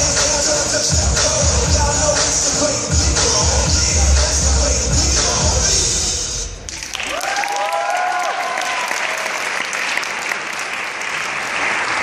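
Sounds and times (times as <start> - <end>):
hip hop music with heavy bass: 0.0 - 6.7
audience clapping and cheering: 6.6 - 12.0
whoops: 6.9 - 9.3.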